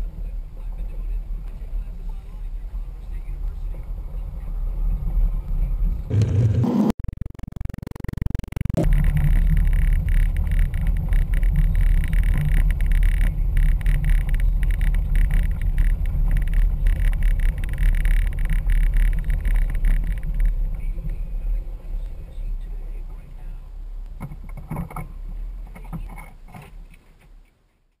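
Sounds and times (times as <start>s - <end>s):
engine and tyre rumble: 0.0s - 7.1s, 7.7s - 27.9s.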